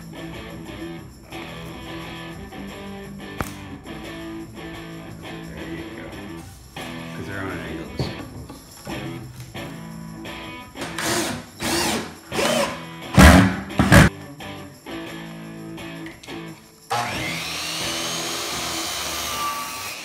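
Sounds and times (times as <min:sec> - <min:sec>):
guitar music: 0:00.0 - 0:16.8
cordless drill driving screws: 0:10.8 - 0:12.8
miter saw cutting wood: 0:10.8 - 0:13.5, 0:16.9 - 0:20.0.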